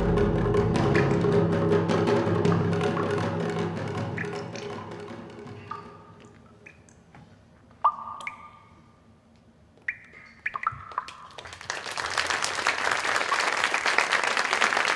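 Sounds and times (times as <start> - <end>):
struck percussion notes: 0.0 - 6.3
audience applause: 11.3 - 14.9.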